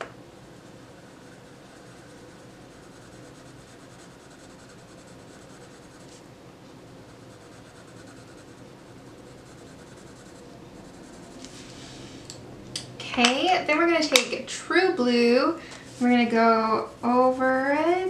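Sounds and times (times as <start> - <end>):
colored pencil scratching paper: 0.4 - 6.2, 7.0 - 12.0.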